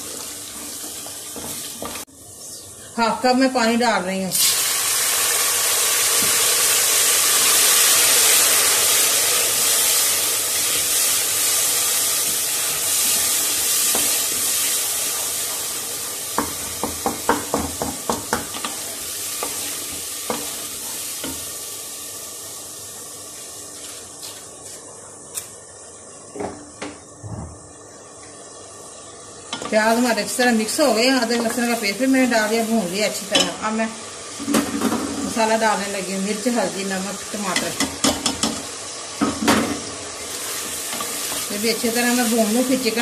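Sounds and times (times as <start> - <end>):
water sizzling in hot oil: 0.0 - 2.3, 4.3 - 24.6, 27.7 - 43.0
wooden spoon knocking on pot: 16.4 - 18.6.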